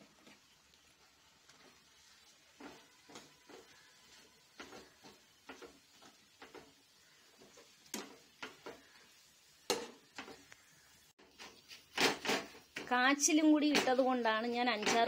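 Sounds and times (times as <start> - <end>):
spoon scraping metal pan: 1.6 - 6.8, 11.2 - 15.0.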